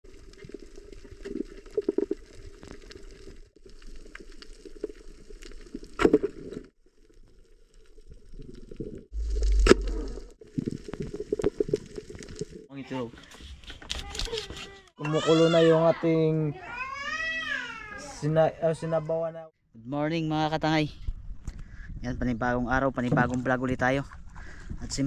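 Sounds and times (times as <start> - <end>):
underwater clicks and crackles: 0.1 - 12.7.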